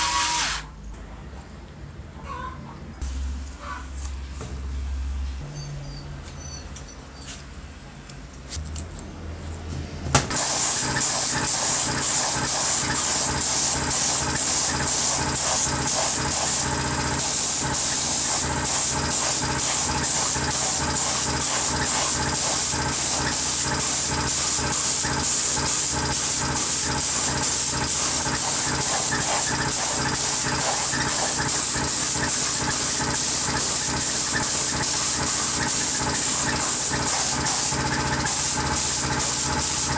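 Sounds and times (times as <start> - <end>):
paint spray gun hissing: 0.0 - 0.7, 10.3 - 39.9.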